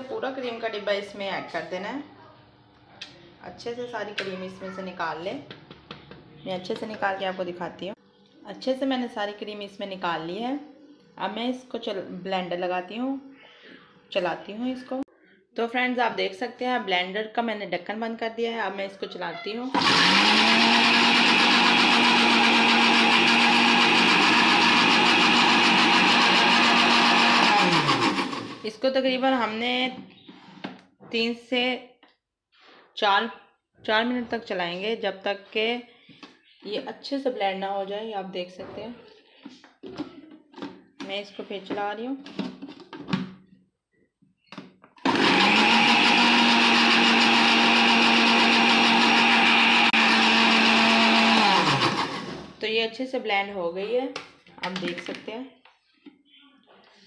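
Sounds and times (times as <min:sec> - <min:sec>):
blender motor humming: 0:19.8 - 0:28.6, 0:45.0 - 0:52.4.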